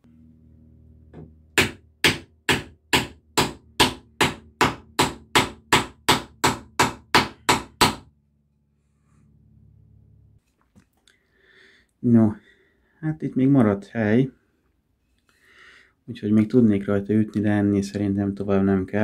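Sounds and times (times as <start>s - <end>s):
mallet striking wooden wedge: 1.2s - 8.1s.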